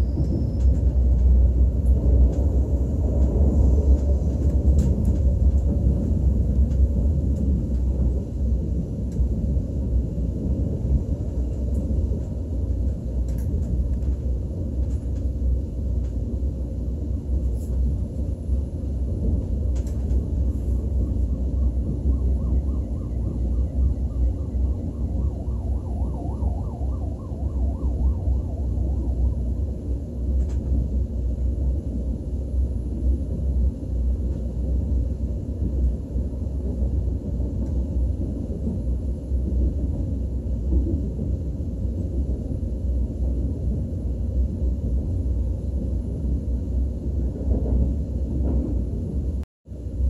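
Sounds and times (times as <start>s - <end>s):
train cabin low rumble: 0.0s - 50.0s.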